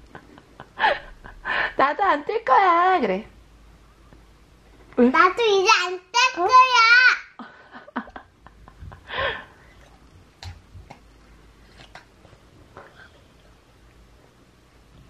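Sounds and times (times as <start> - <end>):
child eating ice pop: 9.6 - 12.5.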